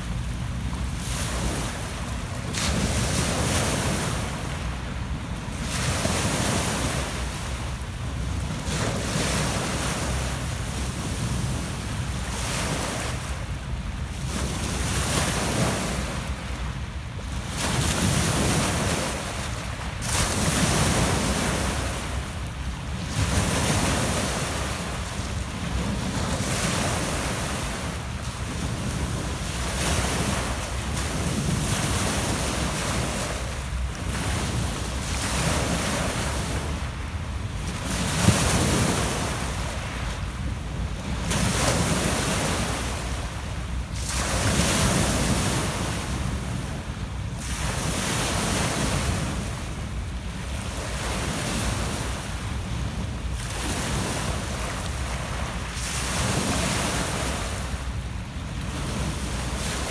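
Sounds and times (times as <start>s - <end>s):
waves breaking on pebble beach: 0.3s - 4.6s, 17.2s - 22.2s, 22.9s - 36.9s, 37.6s - 40.1s, 40.9s - 43.4s, 44.0s - 49.8s, 50.4s - 57.7s.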